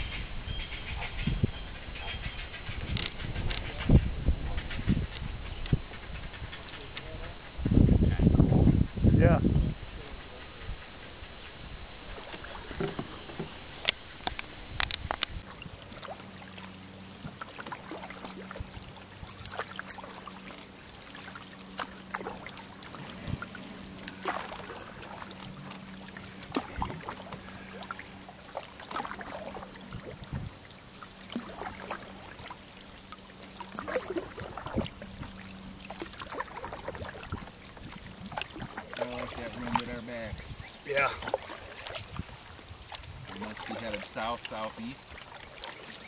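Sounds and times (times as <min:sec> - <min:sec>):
canoe paddle strokes in water: 0:15.4 - 0:46.0
water dripping off paddle: 0:15.4 - 0:46.0.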